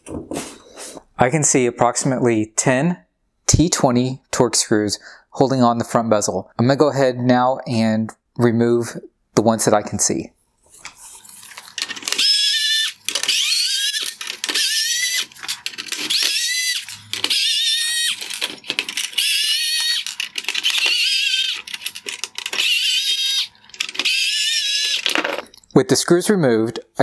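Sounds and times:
electric screwdriver whining: 11.2 - 25.6.

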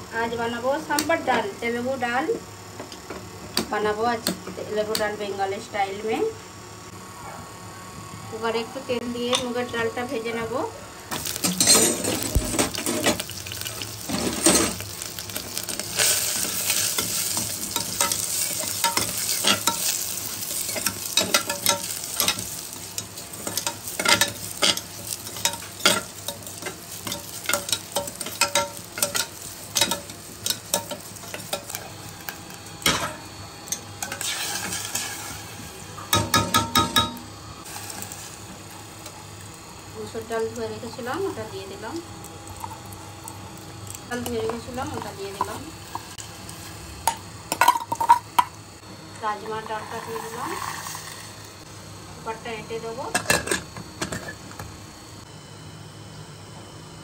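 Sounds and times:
food sizzling in oil: 11.1 - 54.6.

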